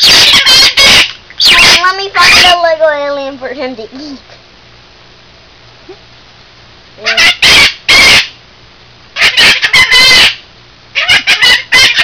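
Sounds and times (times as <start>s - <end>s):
parrot squawking: 0.0s - 2.7s, 7.0s - 8.4s, 9.2s - 10.4s, 11.0s - 12.0s.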